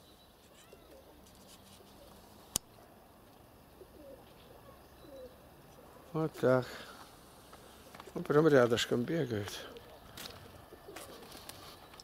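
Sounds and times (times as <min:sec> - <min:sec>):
faint bird calls: 0:03.7 - 0:08.2.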